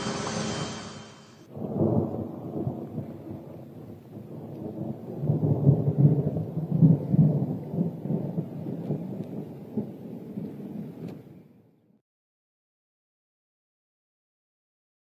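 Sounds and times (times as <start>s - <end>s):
thunder rumbling: 0.0s - 11.3s.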